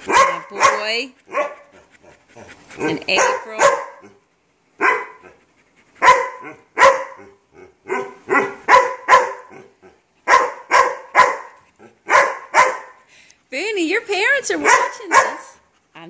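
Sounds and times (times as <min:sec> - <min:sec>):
dog barking: 0:00.0 - 0:02.2, 0:02.8 - 0:04.2, 0:04.8 - 0:05.4, 0:06.0 - 0:13.0, 0:14.5 - 0:15.6.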